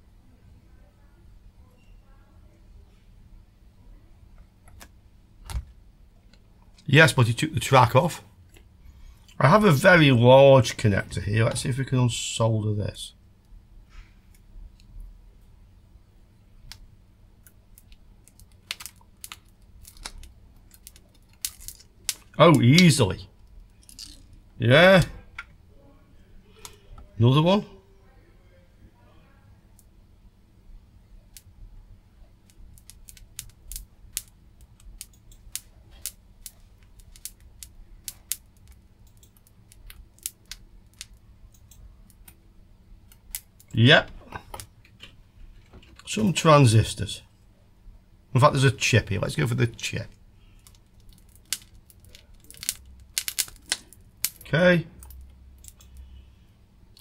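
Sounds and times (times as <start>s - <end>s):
low steady hum: 0.0s - 57.0s
small clicks and ticks: 32.4s - 42.4s, 50.5s - 54.4s.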